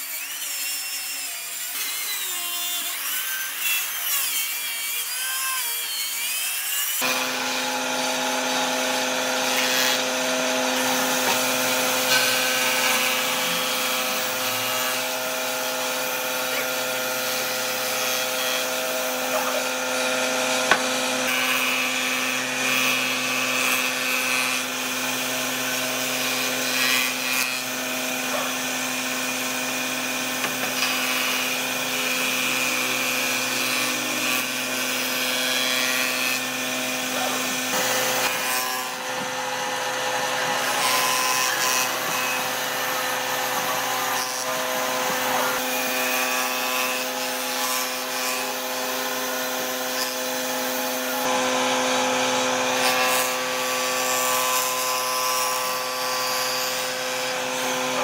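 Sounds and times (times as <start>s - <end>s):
power tool cutting wood: 0.0s - 58.0s.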